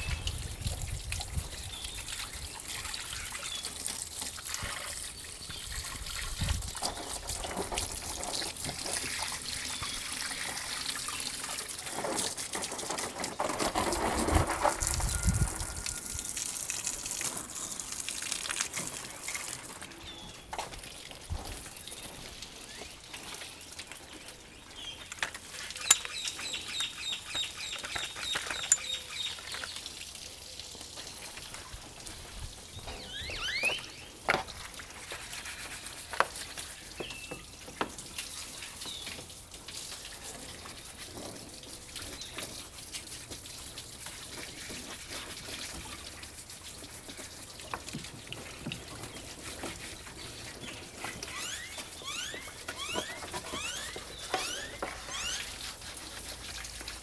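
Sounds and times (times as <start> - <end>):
water dripping and trickling: 0.0 - 57.0
birds chirping: 21.8 - 29.8, 32.8 - 34.2, 50.2 - 55.5
bird rising call: 33.0 - 34.0, 51.2 - 55.5.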